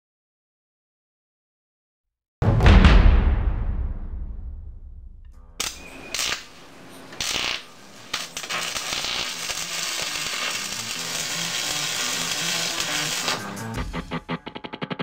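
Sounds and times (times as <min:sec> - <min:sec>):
low tones: 0:02.4 - 0:06.2
crackling sparking bursts: 0:05.6 - 0:15.0.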